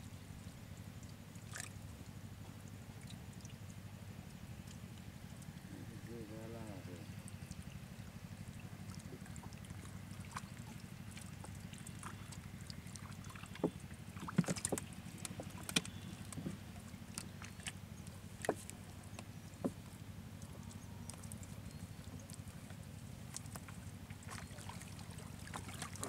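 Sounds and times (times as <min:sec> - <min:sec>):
water splashing and dripping: 0:08.5 - 0:17.8, 0:23.3 - 0:26.0.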